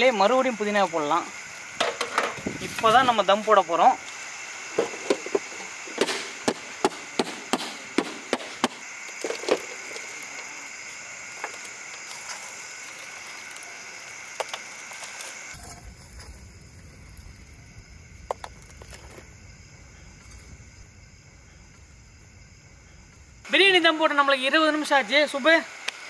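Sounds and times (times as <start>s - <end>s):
steady high hiss: 0.0s - 26.0s
embers raked onto metal lid: 9.0s - 16.4s
low rumble: 15.6s - 23.5s.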